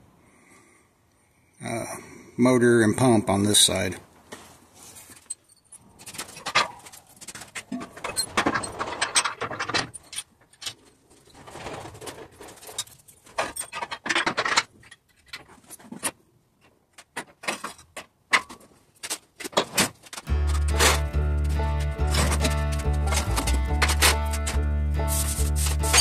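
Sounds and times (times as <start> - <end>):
metal parts clanking: 5.1 - 16.1, 17.0 - 26.0
background music: 20.3 - 26.0.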